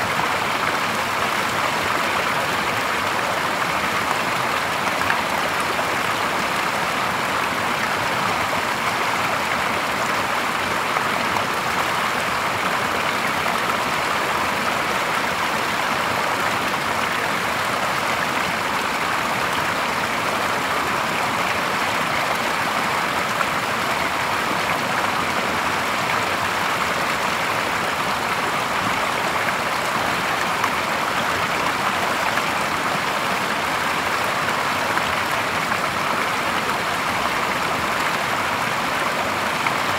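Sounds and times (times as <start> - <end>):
stream water pouring over stones: 0.0 - 39.9.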